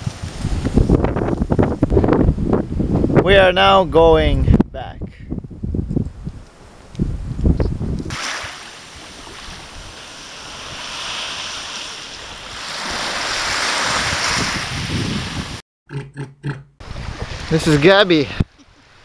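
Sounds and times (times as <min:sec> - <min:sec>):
wind buffeting microphone: 0:00.0 - 0:08.2, 0:12.2 - 0:15.6, 0:16.8 - 0:18.6
sea surf washing against shore: 0:08.0 - 0:15.6, 0:16.8 - 0:19.0.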